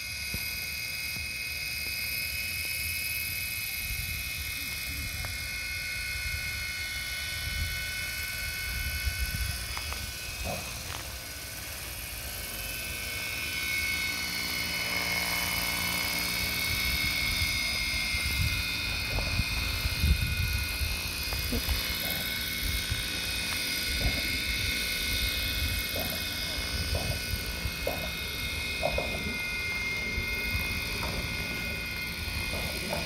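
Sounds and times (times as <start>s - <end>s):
model helicopter rotor whine: 0.0s - 33.0s.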